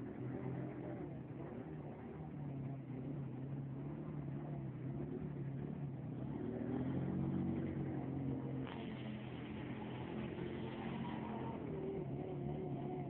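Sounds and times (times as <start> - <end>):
atv engine revving: 4.8 - 13.0.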